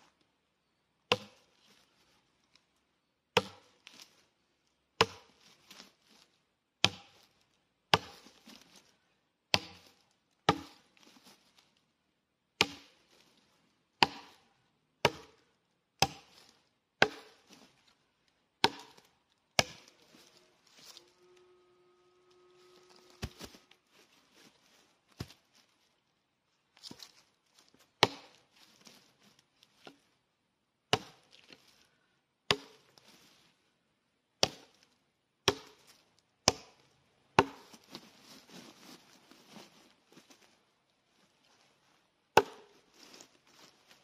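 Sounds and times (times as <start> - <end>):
tomahawk chopping log: 1.1 - 1.4, 3.4 - 4.0, 5.0 - 5.8, 6.8 - 7.2, 7.9 - 8.6, 9.5 - 9.9, 10.5 - 10.8, 12.6 - 13.0, 14.0 - 14.4, 15.0 - 15.4, 16.0 - 17.6, 18.6 - 20.3, 22.8 - 23.6, 28.0 - 28.4, 30.9 - 31.3, 32.5 - 32.9, 34.4 - 34.7, 35.4 - 35.8, 36.4 - 37.8, 42.4 - 42.7.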